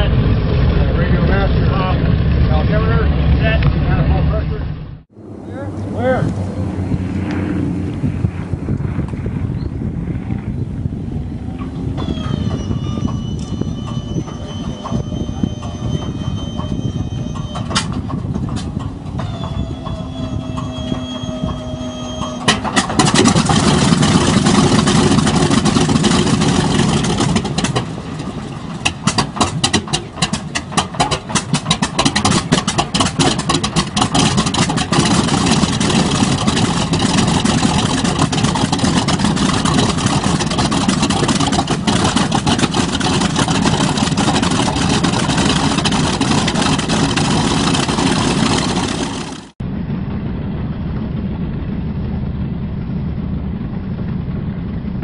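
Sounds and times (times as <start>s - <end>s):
radial engine starting and idling: 10.7s - 55.0s
starter whine: 11.1s - 55.0s.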